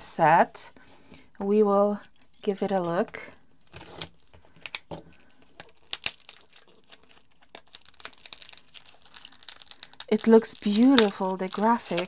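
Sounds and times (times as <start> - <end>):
wrapping crinkling as torn: 3.6 - 12.0.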